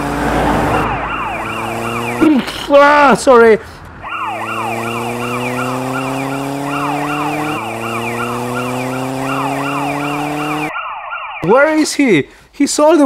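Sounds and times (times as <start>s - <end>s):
engine-like hum: 0.0s - 10.7s
police siren yelping: 0.3s - 2.6s, 4.0s - 11.5s.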